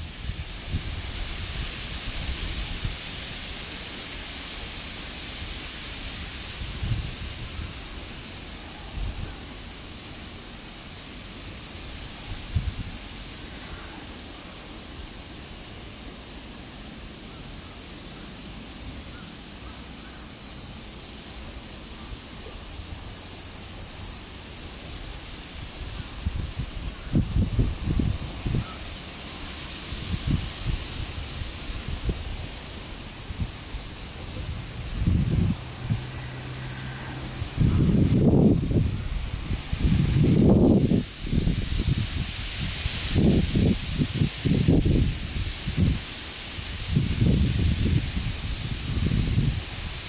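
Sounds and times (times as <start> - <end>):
wind rumble on microphone: 0.0 - 3.2, 6.0 - 8.0, 11.9 - 13.1, 25.0 - 28.9, 29.8 - 50.0
high hiss: 0.0 - 50.0
high-pitched insect drone: 0.0 - 50.0.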